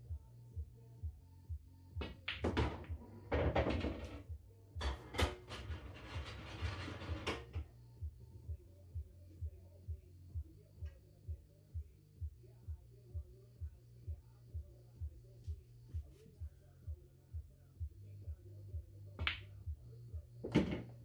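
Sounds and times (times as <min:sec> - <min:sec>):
music with steady beat: 0:00.0 - 0:03.0, 0:07.5 - 0:20.8
ball rattling inside table: 0:02.0 - 0:04.2, 0:04.8 - 0:07.6
pool balls clacking: 0:02.0 - 0:04.2.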